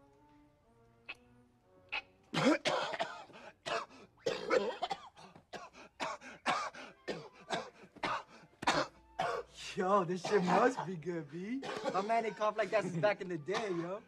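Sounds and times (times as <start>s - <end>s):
man coughing hard: 2.3s - 9.5s, 10.2s - 11.0s, 11.6s - 12.9s, 13.5s - 14.0s.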